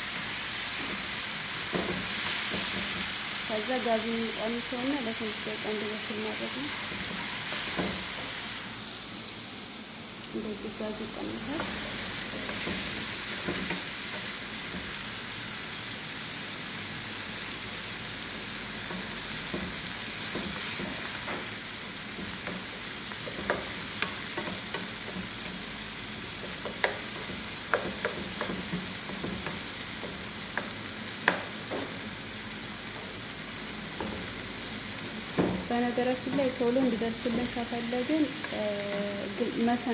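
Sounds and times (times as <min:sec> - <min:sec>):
food sizzling in oil: 0:00.0 - 0:39.9
wooden spoon knocking on pan: 0:01.7 - 0:03.1, 0:11.6 - 0:15.0, 0:18.9 - 0:21.5, 0:22.1 - 0:25.7, 0:26.3 - 0:32.0, 0:34.0 - 0:34.4, 0:35.1 - 0:38.6.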